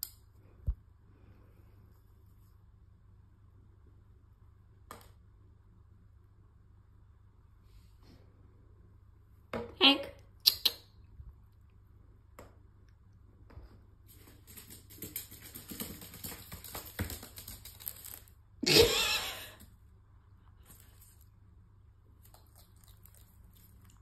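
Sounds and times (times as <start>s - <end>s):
claws clicking on wooden floor: 14.1s - 18.3s.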